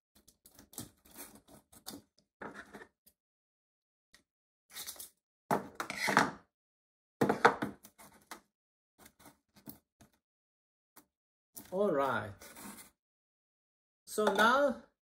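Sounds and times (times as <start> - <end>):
tin cans clicking and tapping: 14.2 - 14.6.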